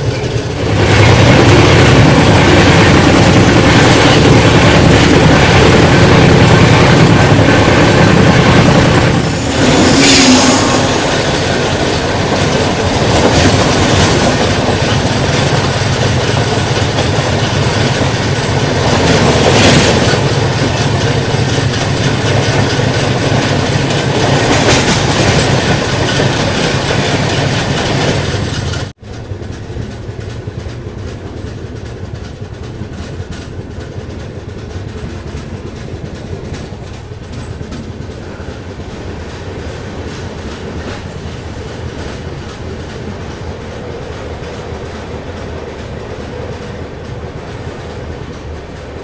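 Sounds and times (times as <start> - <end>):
train rumbling: 0.0 - 49.0
train wheels clacking on rails: 0.0 - 49.0
rushing air: 0.6 - 14.7.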